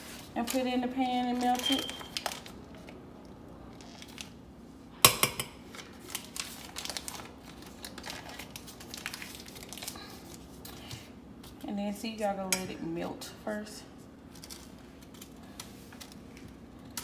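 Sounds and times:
paper wrapper crinkling: 0.0 - 3.0, 3.7 - 4.4, 5.7 - 10.9, 14.2 - 17.0.

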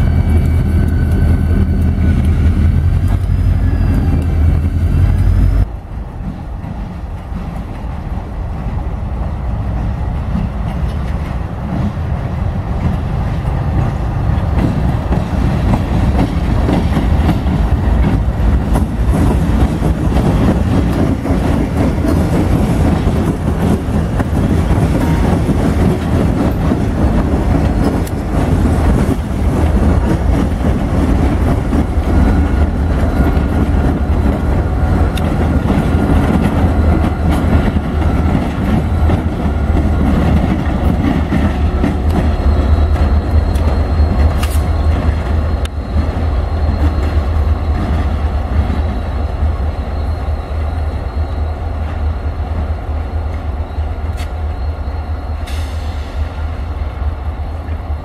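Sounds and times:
diesel locomotive engines running: 0.0 - 58.0
wheels rolling on rails: 9.7 - 54.7.

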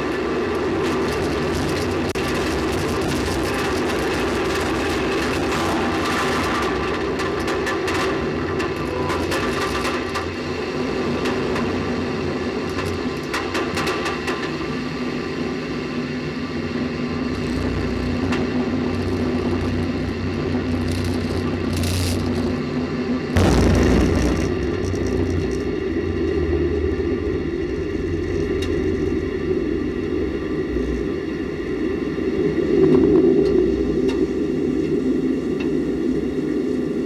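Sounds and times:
rocket rumble and air rush: 0.0 - 37.0
loud burst: 23.4 - 26.6.

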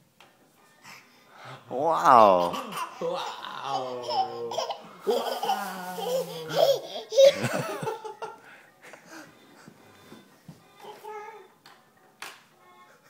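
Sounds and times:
toddler laughing and giggling: 2.3 - 8.3.

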